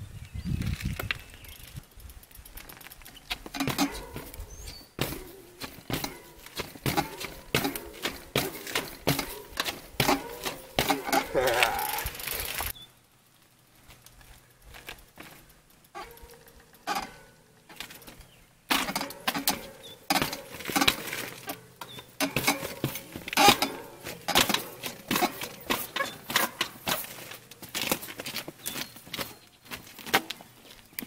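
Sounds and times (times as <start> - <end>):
bike clicks: 0.2 - 31.0
bike tyres knocking on steps: 3.1 - 12.7, 16.0 - 30.6.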